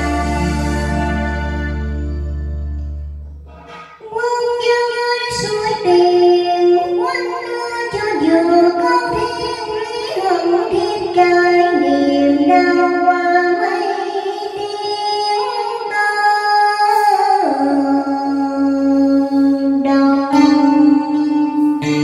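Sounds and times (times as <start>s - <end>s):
backing music: 0.0s - 4.1s, 20.3s - 22.0s
woman singing into microphone: 4.0s - 22.0s.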